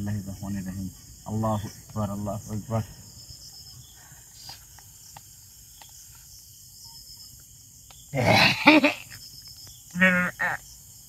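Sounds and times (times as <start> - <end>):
crickets chirping: 0.0 - 11.0
faint ticks: 3.9 - 6.4, 9.0 - 10.0.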